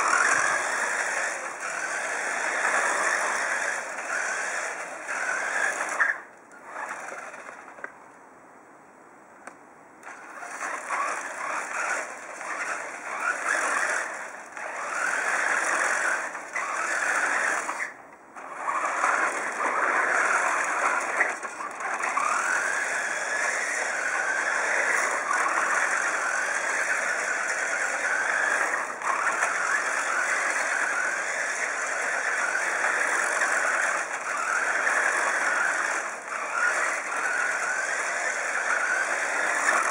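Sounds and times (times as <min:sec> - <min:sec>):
toy truck electric motor whining: 0:00.0 - 0:07.9, 0:10.0 - 0:39.9
wheels rattling over wooden tiles: 0:00.0 - 0:07.9, 0:10.0 - 0:39.9.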